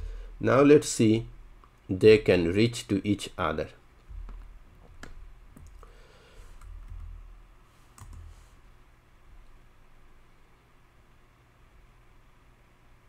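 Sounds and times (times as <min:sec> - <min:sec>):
low background hum: 0:00.0 - 0:13.0
computer keys clicking: 0:06.6 - 0:07.2, 0:08.0 - 0:08.3.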